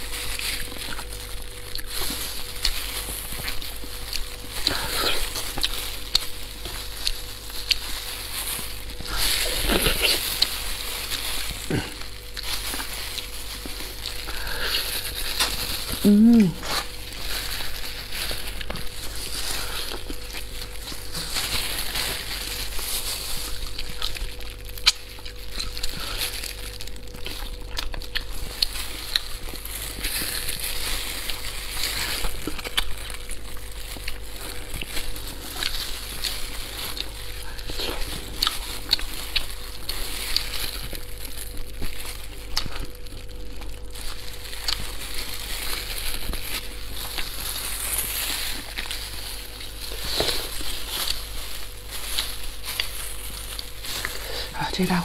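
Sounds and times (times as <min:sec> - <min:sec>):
faint steady hum: 0:00.0 - 0:55.0
wet chewing and lip smacks: 0:23.6 - 0:26.0, 0:26.6 - 0:29.5, 0:36.9 - 0:39.9, 0:42.5 - 0:44.9.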